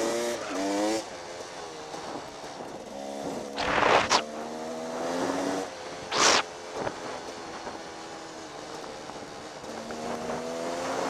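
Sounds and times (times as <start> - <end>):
dirt bike engine revving: 1.9 - 8.1, 9.6 - 11.0
bursts of rushing noise: 3.6 - 4.3, 6.1 - 6.5.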